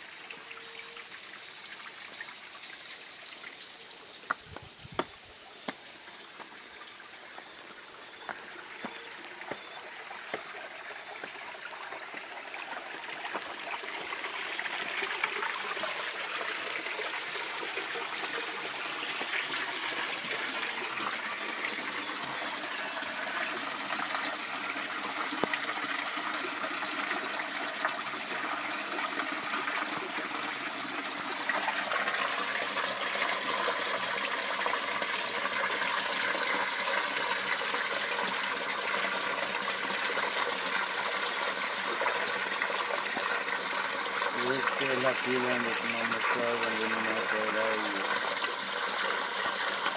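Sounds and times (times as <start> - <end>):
creek water rushing: 0.0 - 49.9.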